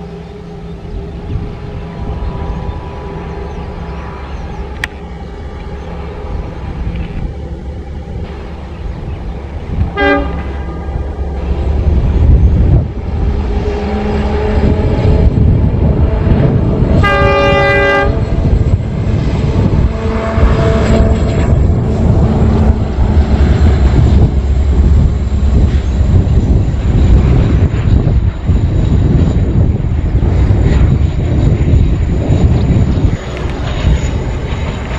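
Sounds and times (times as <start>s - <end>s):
train low rumble: 0.0s - 34.9s
locomotive horn: 9.8s - 11.2s, 13.6s - 18.7s, 19.5s - 22.8s.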